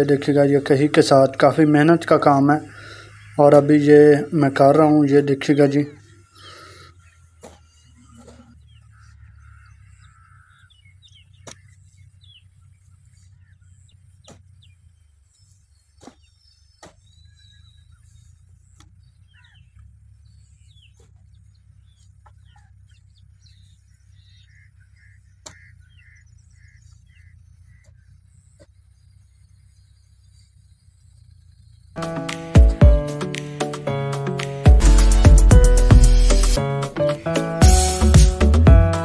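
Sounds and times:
birds chirping: 0:00.0 - 0:39.0
hoe blade chopping dry soil: 0:06.5 - 0:08.7, 0:11.2 - 0:12.1, 0:14.0 - 0:19.1, 0:20.6 - 0:23.6, 0:25.3 - 0:25.8.

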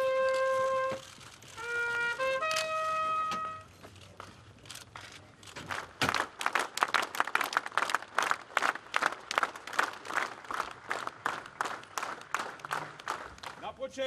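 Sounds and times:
crowd clapping: 0:05.6 - 0:14.0.

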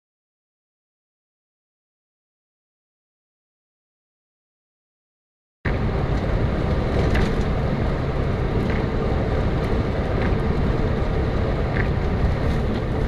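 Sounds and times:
car road and engine rumble: 0:05.7 - 0:13.0.

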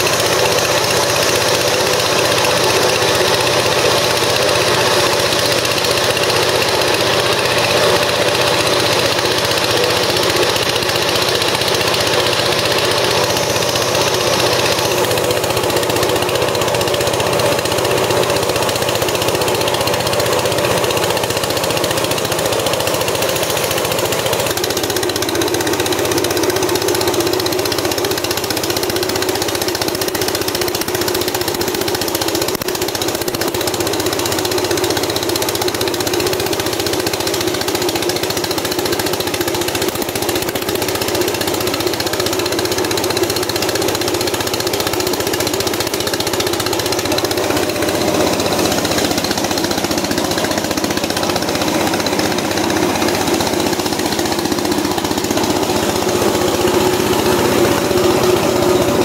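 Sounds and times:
thresher mechanical hum: 0:00.0 - 0:59.0
rushing threshing noise: 0:39.0 - 0:59.0.

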